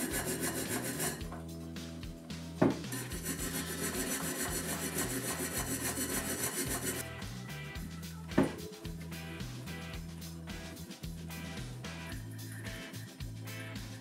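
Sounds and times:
brush scrubbing metal hub: 0.0s - 1.5s, 2.9s - 7.0s
background music: 0.0s - 14.0s
knock: 2.6s - 2.8s.

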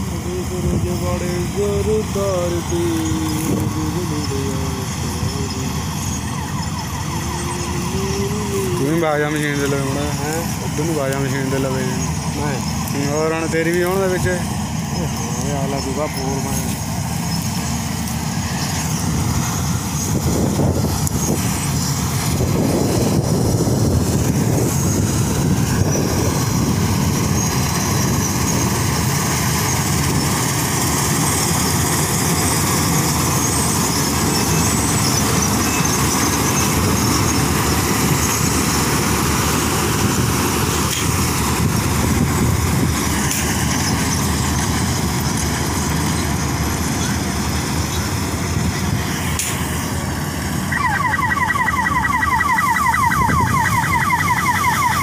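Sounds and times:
combine harvester running: 0.0s - 55.0s
high repeated chirps: 2.6s - 8.9s, 50.7s - 55.0s.

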